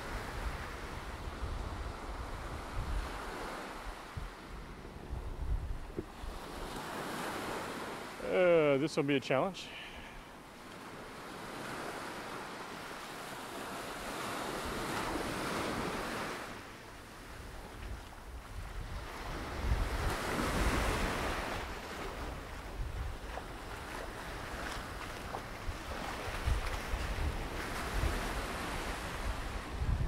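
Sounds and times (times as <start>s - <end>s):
wind buffeting microphone: 0.0s - 6.7s, 17.2s - 30.0s
small waves washing on sand: 0.0s - 30.0s.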